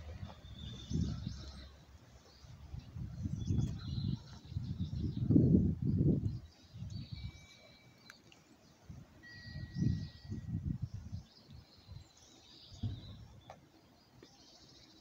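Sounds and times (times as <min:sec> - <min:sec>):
birds chirping and calling: 0:00.0 - 0:15.0.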